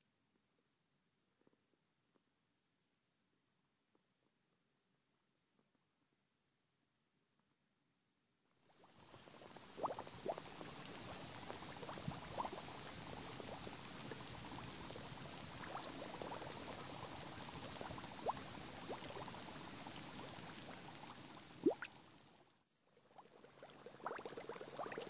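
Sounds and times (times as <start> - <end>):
small bubble pops: 8.8 - 22.1, 23.5 - 25.0
sand fizzing and crackling: 8.8 - 22.4, 23.2 - 25.0.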